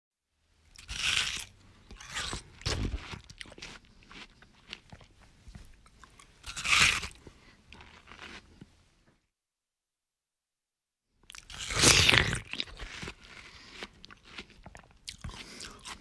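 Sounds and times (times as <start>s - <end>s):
crunchy bite into watermelon: 0.7s - 5.1s, 6.1s - 8.6s, 11.3s - 16.0s.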